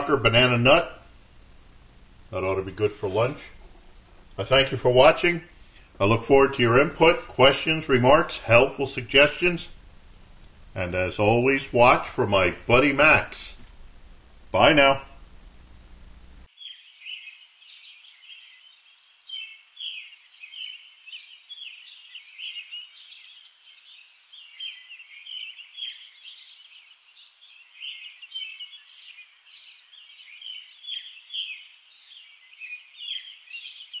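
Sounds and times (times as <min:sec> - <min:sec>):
birds chirping and singing: 0:16.5 - 0:34.0.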